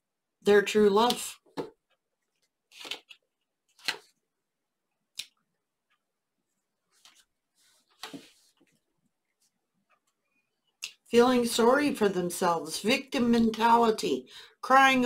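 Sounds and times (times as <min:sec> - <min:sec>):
cards snapping on wooden table: 0:03.8 - 0:04.1
card sliding: 0:08.0 - 0:08.4.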